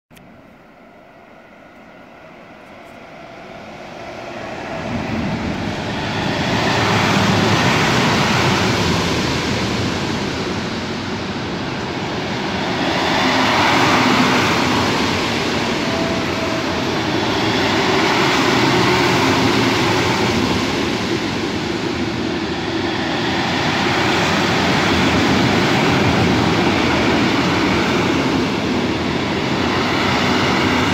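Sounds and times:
freight train wheels on rails: 0:01.4 - 0:30.9.

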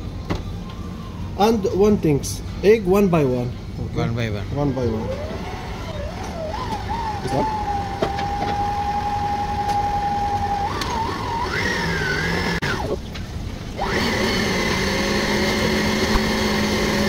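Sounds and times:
stand mixer motor whining: 0:04.6 - 0:13.0, 0:13.8 - 0:17.0.

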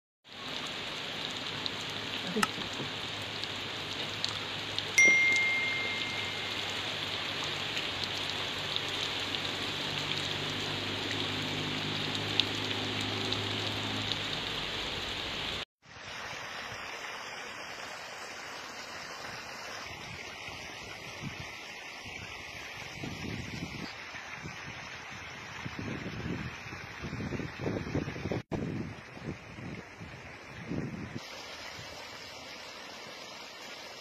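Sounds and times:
rain falling on water and roofs: 0:00.2 - 0:34.0.

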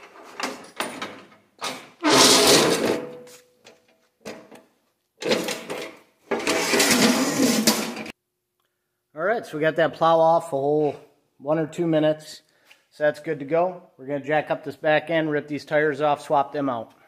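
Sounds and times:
steel frame scraping on concrete: 0:02.0 - 0:03.4, 0:06.3 - 0:08.1.

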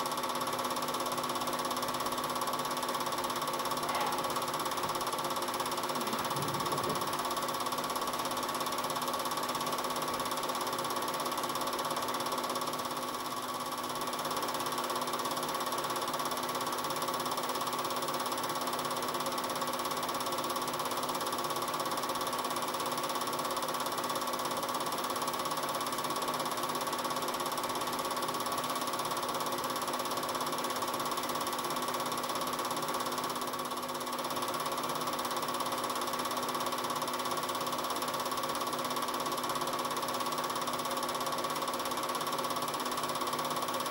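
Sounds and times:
film projector whirring: 0:00.0 - 0:43.9.

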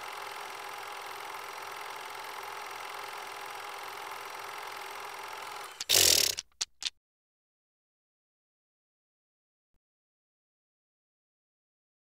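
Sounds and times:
film projector whirring: 0:00.0 - 0:06.5
short clicks: 0:05.7 - 0:06.9.

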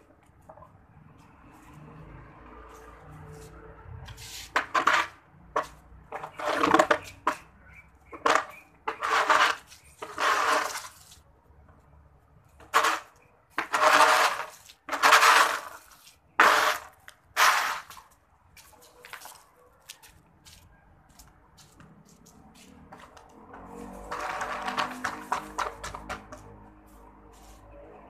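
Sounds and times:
broom sweeping concrete: 0:02.6 - 0:07.4, 0:08.2 - 0:11.3, 0:12.6 - 0:19.0, 0:21.6 - 0:28.0.

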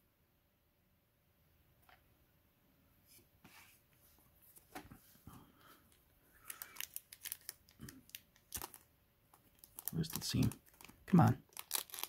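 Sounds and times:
wrapper crinkling: 0:06.4 - 0:12.0.

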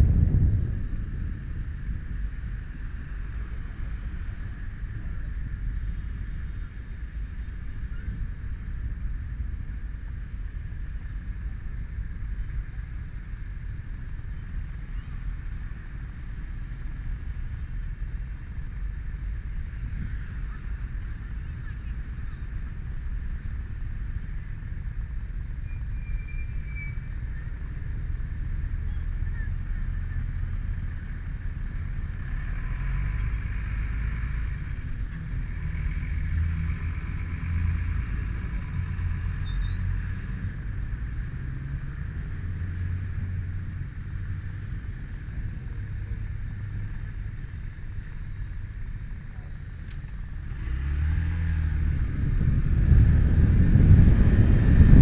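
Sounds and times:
motorcycle engine idling: 0:00.0 - 0:25.6
street traffic: 0:00.0 - 0:55.0.

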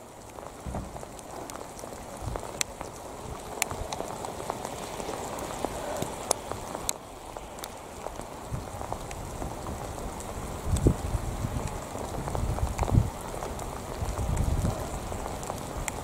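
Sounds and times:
rain patter: 0:00.0 - 0:16.0
low thump: 0:00.6 - 0:01.1.

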